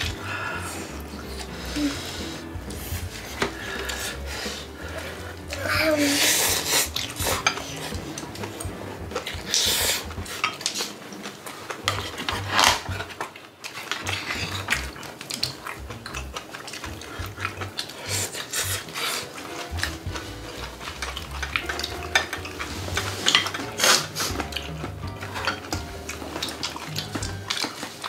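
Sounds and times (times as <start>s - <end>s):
chopsticks clicking against bowls: 6.4s - 28.0s.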